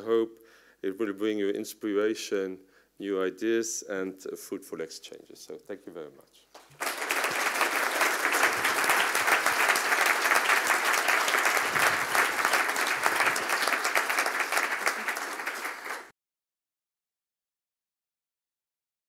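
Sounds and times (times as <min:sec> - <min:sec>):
audience applauding: 0:06.6 - 0:16.1.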